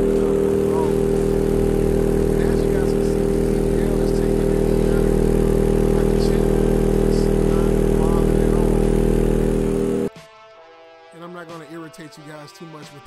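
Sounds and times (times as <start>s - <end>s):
subwoofer low test tone hum: 0.0s - 10.1s.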